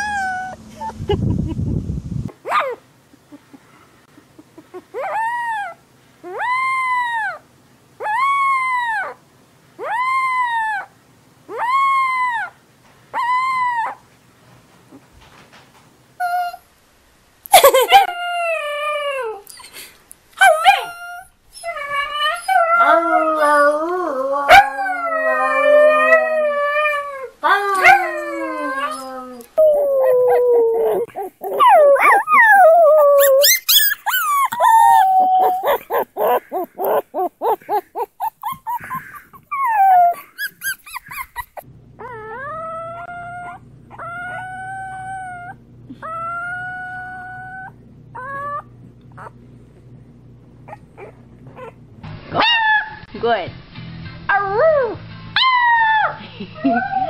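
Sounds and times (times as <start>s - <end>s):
puppies howling: 0.0s - 0.7s, 5.0s - 7.4s, 8.0s - 9.2s, 9.8s - 10.9s, 11.5s - 12.6s, 17.6s - 19.4s, 20.4s - 49.3s
low steady hum: 0.0s - 53.4s
puppies yipping: 17.6s - 18.1s, 29.6s - 42.2s.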